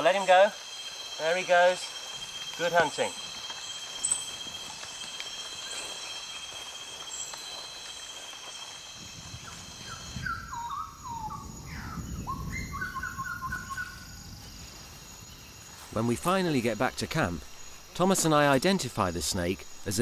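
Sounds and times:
high-pitched insect chorus: 0:00.0 - 0:20.0
short whistled calls: 0:09.4 - 0:14.2.

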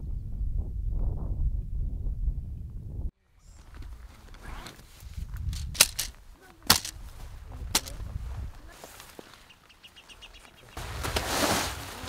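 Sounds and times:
tent fabric rustling: 0:03.4 - 0:12.0
sharp fabric snaps: 0:05.6 - 0:07.0, 0:07.7 - 0:08.0.

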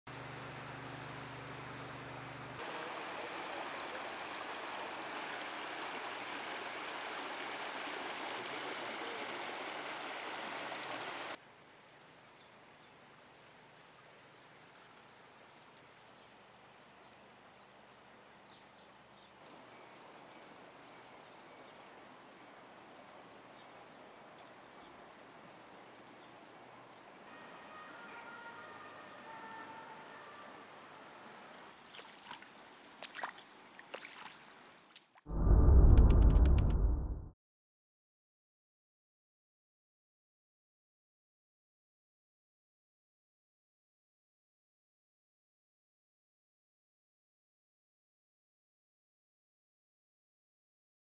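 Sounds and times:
floodwater rushing: 0:02.6 - 0:11.4, 0:31.1 - 0:35.1.

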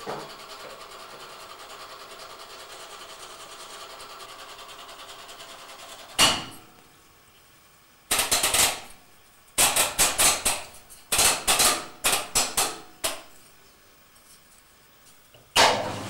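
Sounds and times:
washing machine humming: 0:00.0 - 0:07.1, 0:15.4 - 0:16.0.

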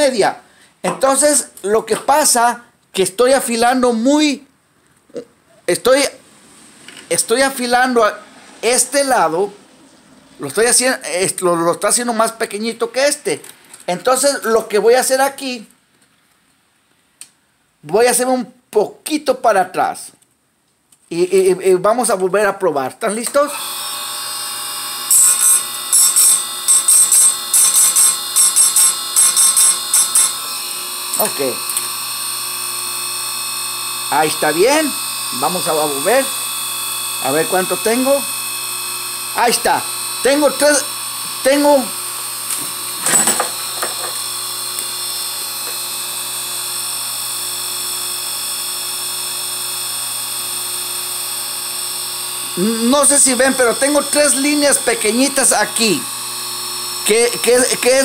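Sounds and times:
chain sharpener motor whine: 0:23.5 - 0:58.0
grinding wheel humming: 0:23.6 - 0:58.0
grinding strokes on chain: 0:25.1 - 0:32.0.

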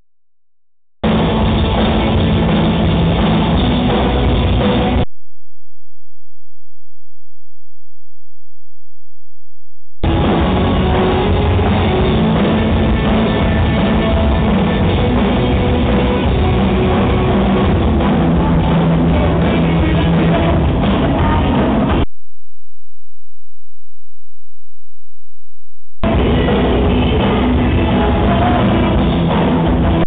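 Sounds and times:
drum kit: 0:01.0 - 0:05.0, 0:10.0 - 0:22.1, 0:26.0 - 0:30.0
electric guitars: 0:01.0 - 0:05.0, 0:10.0 - 0:22.0, 0:26.0 - 0:30.0.

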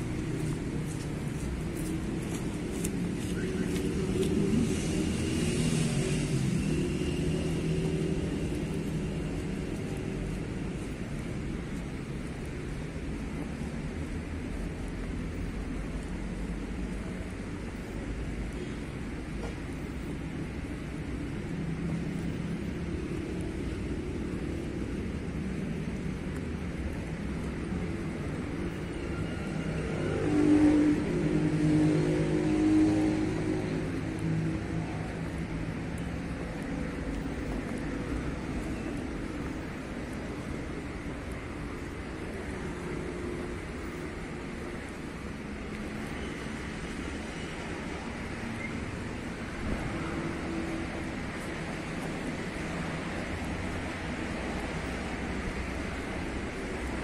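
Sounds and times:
vehicle engine passing by: 0:00.0 - 0:10.6, 0:29.2 - 0:36.4
low engine rumble: 0:00.0 - 0:57.0
street traffic noise: 0:00.0 - 0:57.0.

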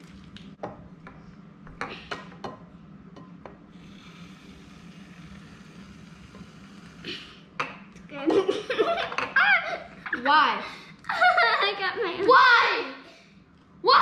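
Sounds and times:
slime rubbing hiss: 0:03.8 - 0:07.2.

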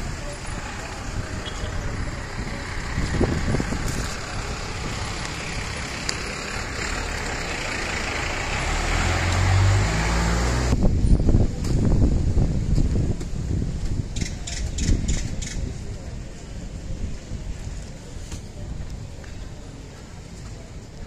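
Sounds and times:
vehicle engine humming: 0:00.0 - 0:14.1
vehicles passing: 0:00.0 - 0:21.0.

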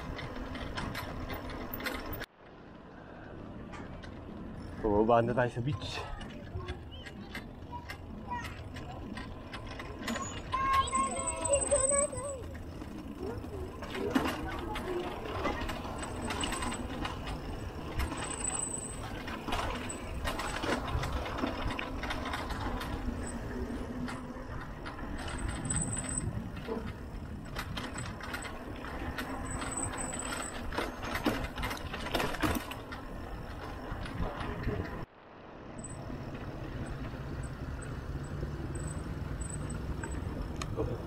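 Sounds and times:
bike rattling and clicking: 0:00.0 - 0:02.8, 0:03.6 - 0:35.1, 0:35.7 - 0:41.0
wind rumbling on microphone: 0:15.1 - 0:41.0.

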